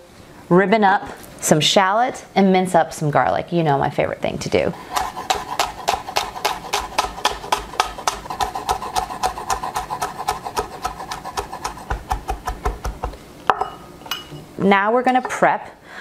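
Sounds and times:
knife chopping on wooden board: 4.9s - 13.2s.

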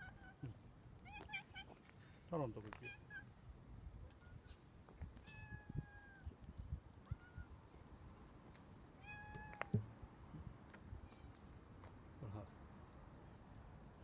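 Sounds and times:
cat meowing: 5.2s - 6.2s.

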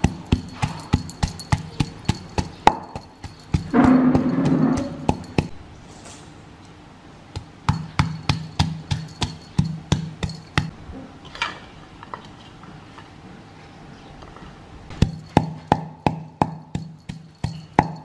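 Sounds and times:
wooden pestle pounding in mortar: 0.0s - 5.6s, 7.3s - 10.7s, 15.0s - 18.0s.

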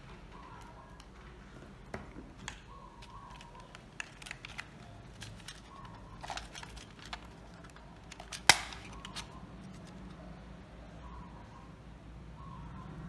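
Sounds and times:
plastic controller clicks: 2.4s - 10.0s
battery cover snapping: 3.4s - 9.3s.

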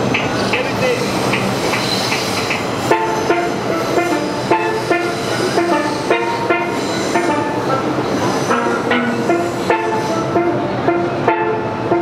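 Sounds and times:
subway train rumbling: 0.0s - 12.0s
steel pans playing: 1.3s - 12.0s.

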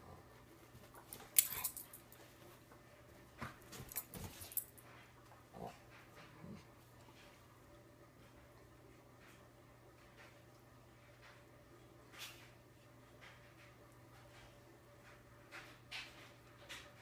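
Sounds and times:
dogs scuffling: 0.1s - 7.2s
dogs play growling: 3.7s - 4.7s, 5.3s - 7.4s.

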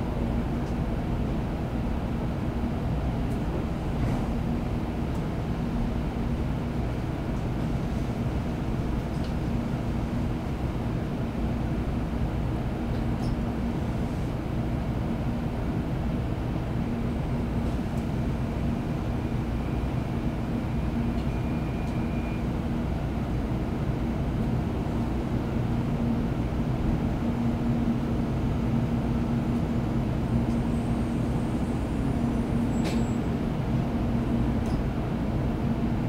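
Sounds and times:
train cabin running rumble: 0.0s - 36.0s
faint high whistle: 21.2s - 22.5s.

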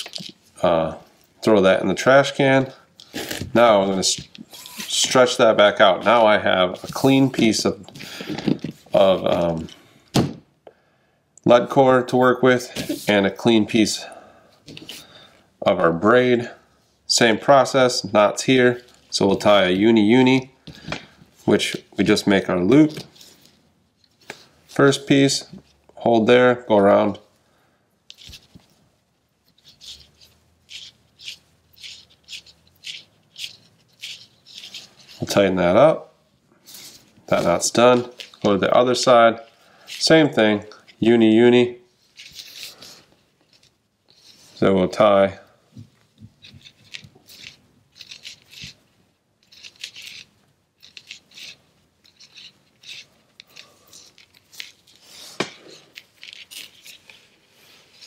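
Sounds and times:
fishing line rubbing between fingers: 29.4s - 35.3s, 42.0s - 44.7s, 46.3s - 48.8s, 49.4s - 58.0s.

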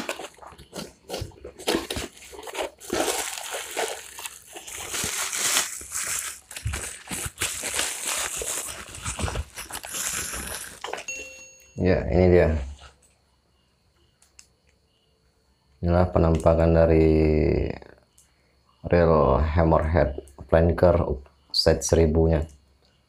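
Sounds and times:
cardboard box being opened: 0.0s - 11.1s
plastic bag crinkling: 0.0s - 11.1s.

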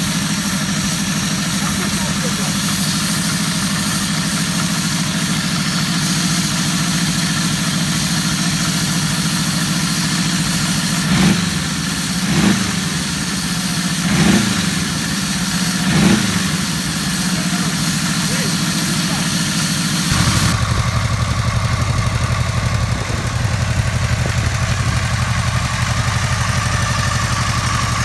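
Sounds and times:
engine idling and revving: 0.0s - 28.0s.

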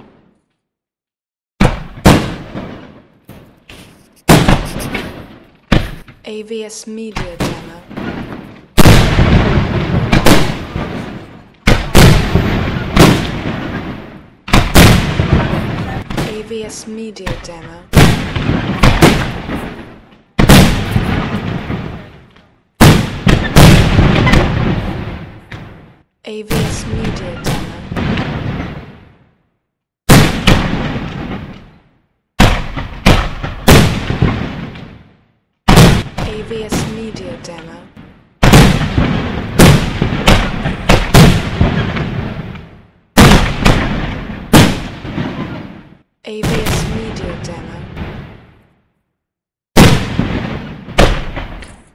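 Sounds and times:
firework shells bursting: 1.6s - 6.2s.

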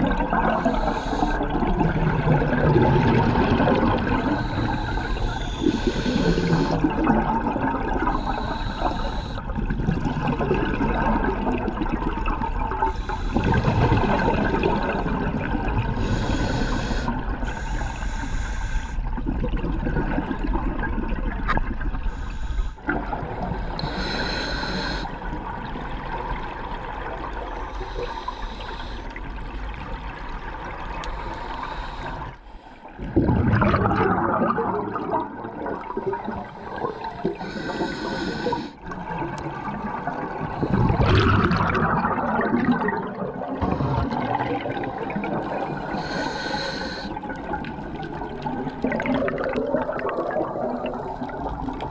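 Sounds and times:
bubbling exhaled air: 0.0s - 26.3s, 33.0s - 51.9s
regulator hissing inhales: 0.6s - 1.4s, 4.2s - 6.8s, 8.2s - 9.4s, 12.9s - 14.4s, 16.0s - 19.1s, 22.1s - 22.8s, 23.6s - 25.1s, 27.8s - 29.2s, 31.1s - 32.9s, 36.7s - 38.8s, 45.8s - 47.2s.

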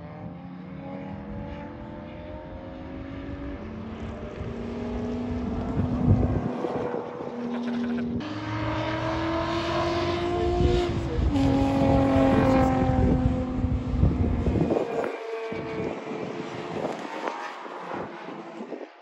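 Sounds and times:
car engine revving through gears: 0.7s - 18.8s.

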